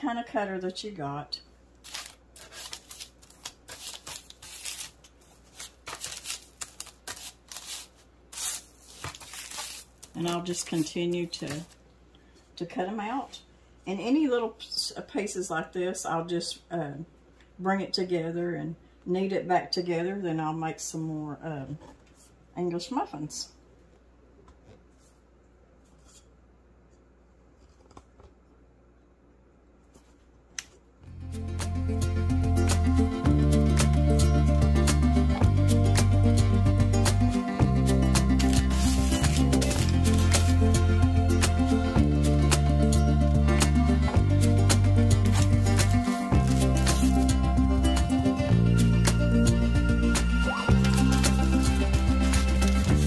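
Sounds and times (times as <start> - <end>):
hands rustling dough on paper: 1.8 - 11.8, 38.2 - 40.8, 45.2 - 47.5, 50.5 - 53.0
guitar music: 31.0 - 53.0.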